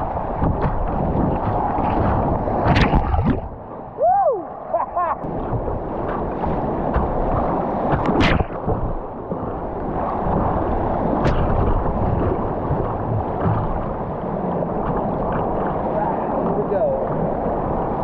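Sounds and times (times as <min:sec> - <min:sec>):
sharp splash: 0:00.0 - 0:03.5
water slapping plastic hull: 0:00.0 - 0:03.7, 0:05.2 - 0:18.0
whitewater rushing: 0:00.0 - 0:18.0.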